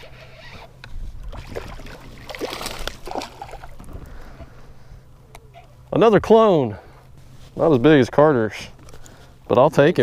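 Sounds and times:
water splashing against boat: 0.0s - 4.4s.

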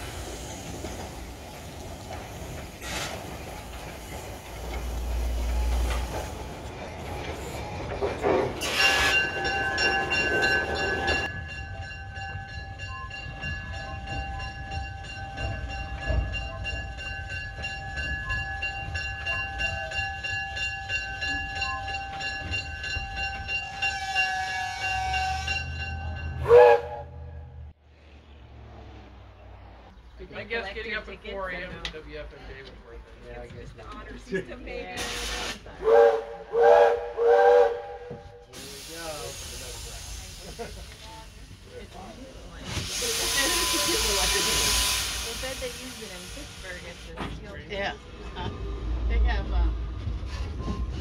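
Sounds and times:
steam locomotive hissing steam: 0.0s - 7.8s, 8.5s - 11.4s, 34.9s - 47.9s
locomotive rumble: 0.0s - 51.0s
bell ringing: 8.6s - 26.5s.

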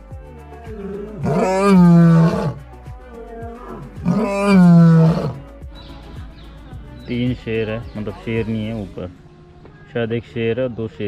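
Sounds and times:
background music: 0.0s - 10.1s
lion roaring: 0.6s - 2.6s, 3.5s - 5.4s.

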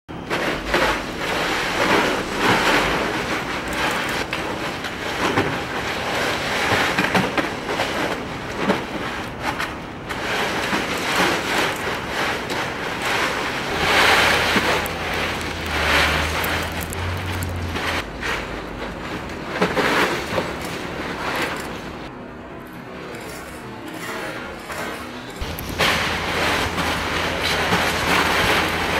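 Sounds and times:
ice cubes crunching and clattering: 0.3s - 22.1s, 25.4s - 28.9s.

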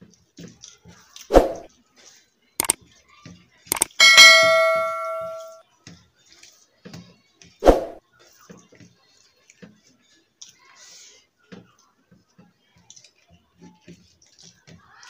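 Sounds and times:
mouse clicks: 3.7s - 4.0s
bright bell ding: 3.7s - 5.6s.

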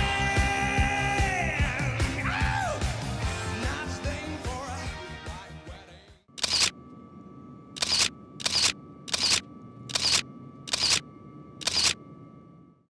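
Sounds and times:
camera shutter clicking: 6.4s - 6.7s, 7.8s - 11.0s, 11.6s - 12.0s
faint steady tone: 6.4s - 12.9s.

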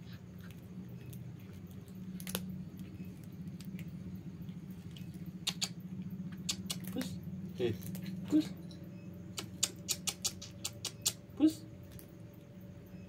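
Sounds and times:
steady low hum: 0.0s - 13.0s
cat chewing food: 0.1s - 7.0s
sharp clicking bites: 4.9s - 7.2s, 9.2s - 11.3s.

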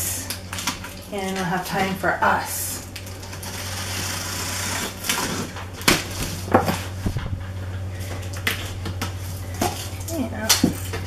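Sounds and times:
box cutter slitting tape: 3.4s - 6.0s.

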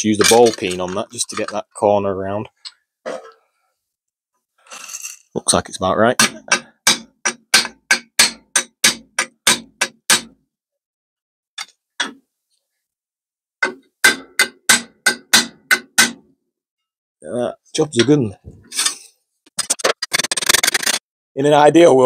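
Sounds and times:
hammer tapping sheet metal: 6.2s - 10.3s, 13.6s - 16.2s.

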